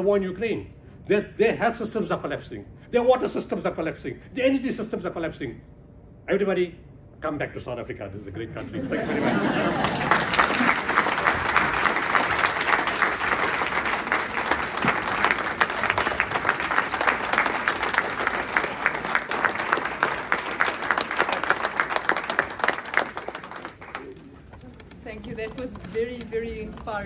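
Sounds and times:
audience applause: 9.0 - 25.7.

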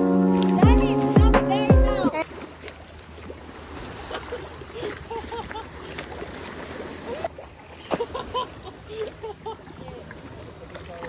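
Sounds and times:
small waves lapping on stone: 0.3 - 11.0.

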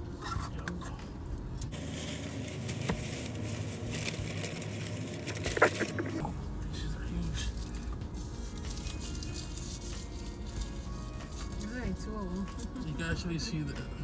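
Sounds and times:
paper wrappers rustling: 1.7 - 6.2, 7.2 - 12.8
plastic bag rustling: 1.7 - 6.3, 7.4 - 12.8.

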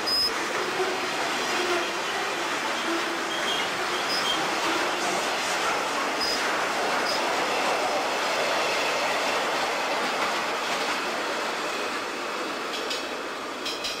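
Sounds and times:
train wheels rumbling on rails: 0.0 - 14.0.

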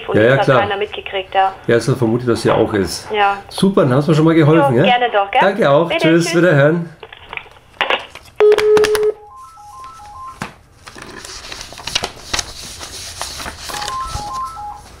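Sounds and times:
paper rustling: 7.0 - 8.4, 9.4 - 15.0
steady telephone tone: 8.4 - 10.4, 13.8 - 15.0.

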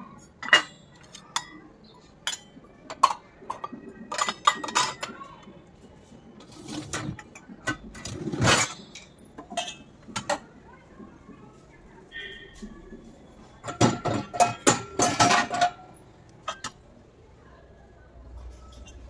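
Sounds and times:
steel dishes clinking in dishwasher rack: 0.4 - 1.6, 2.2 - 5.2, 6.5 - 10.4, 13.6 - 16.8.

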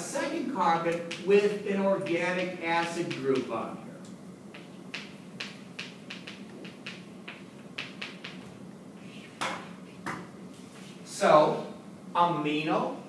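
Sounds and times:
steady low hum: 0.0 - 13.0
chalk tapping and scratching: 1.0 - 1.4, 4.5 - 8.4.

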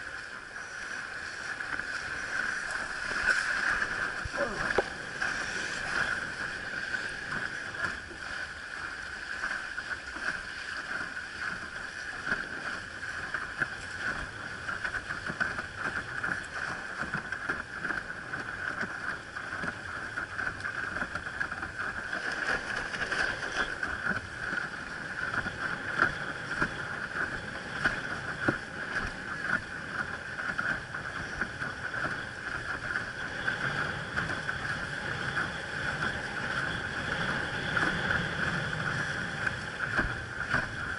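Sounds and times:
small water splashes: 0.0 - 25.7
water rushing against a board: 0.0 - 40.9.

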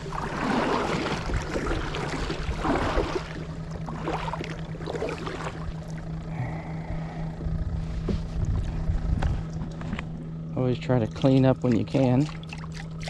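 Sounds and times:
kayak paddle splashing in water: 0.0 - 6.1
steady low hum: 0.0 - 13.0.

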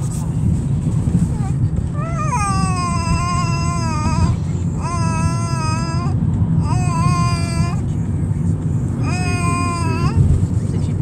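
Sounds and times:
moving car rumble: 0.0 - 11.0
dog whining: 1.2 - 7.8.

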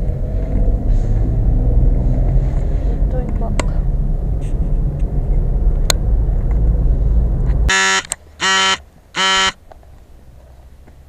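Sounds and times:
road rumble inside car: 0.0 - 7.7, 8.8 - 11.0
electronic buzzer beeps: 7.7 - 9.6.

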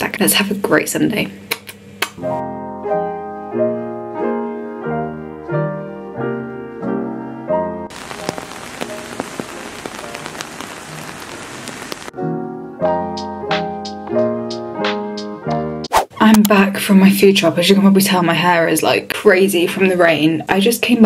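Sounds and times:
soft piano music: 2.2 - 15.8
rain hissing: 7.9 - 12.2.

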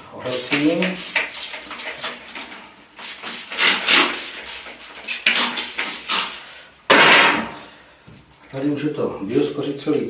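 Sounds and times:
spray bottle squirts: 0.3 - 6.4.

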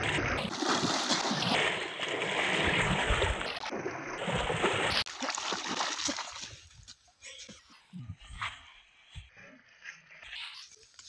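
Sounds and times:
person wading through water: 0.0 - 6.8.

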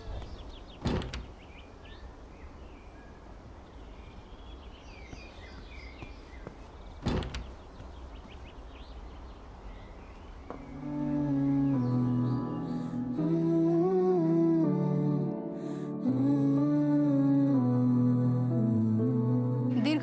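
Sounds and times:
birds chirping faintly: 0.0 - 14.1
door being opened: 0.8 - 1.4, 7.0 - 7.7.

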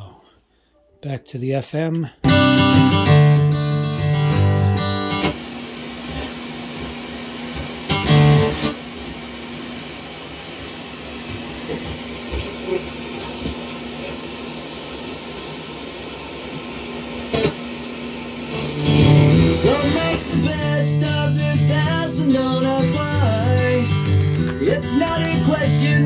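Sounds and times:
radio broadcast music: 10.9 - 15.3, 16.4 - 26.0
radio static hiss: 11.7 - 14.5.

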